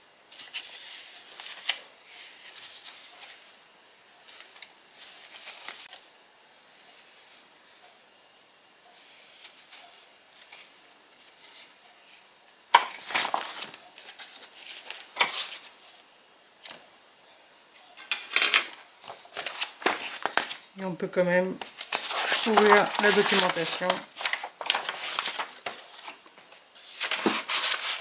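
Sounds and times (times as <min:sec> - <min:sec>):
paper sheets rustling: 0:00.3 - 0:03.6, 0:04.2 - 0:06.0, 0:12.8 - 0:16.0, 0:18.4 - 0:20.7, 0:21.6 - 0:28.0.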